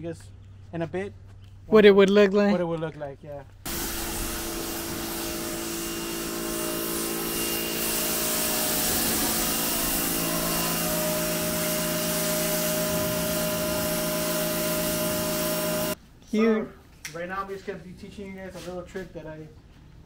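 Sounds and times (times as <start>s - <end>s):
pressure washer motor hum: 3.7s - 16.0s
water spray hissing: 3.7s - 16.0s.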